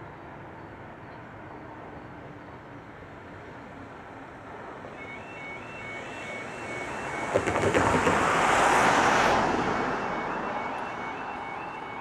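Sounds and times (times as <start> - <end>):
vehicle driving past: 5.0 - 11.9
tyres knocking over rails: 7.3 - 8.4.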